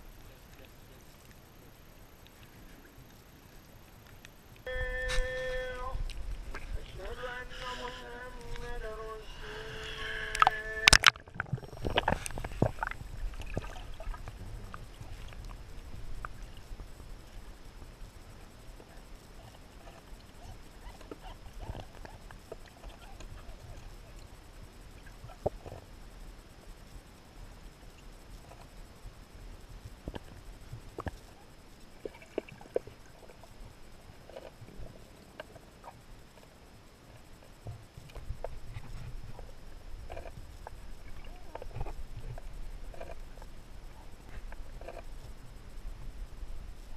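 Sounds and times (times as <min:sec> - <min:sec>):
faint steady high tone: 0:00.0 - 0:32.3, 0:33.0 - 0:46.9
underwater rumble: 0:00.0 - 0:46.9
faint clicks and knocks: 0:29.8 - 0:33.5, 0:34.2 - 0:46.1.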